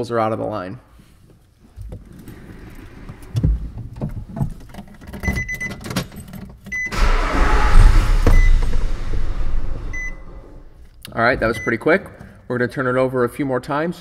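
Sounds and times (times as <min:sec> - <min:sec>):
keys and handling clicks: 0:04.5 - 0:06.8
car engine cranking and running: 0:06.8 - 0:10.6.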